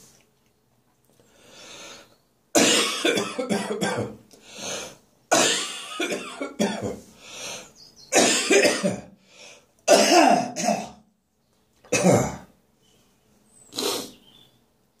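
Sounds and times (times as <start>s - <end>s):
person coughing and choking: 2.6s - 4.2s, 5.3s - 7.0s, 8.1s - 9.1s, 9.9s - 11.0s, 11.9s - 12.5s.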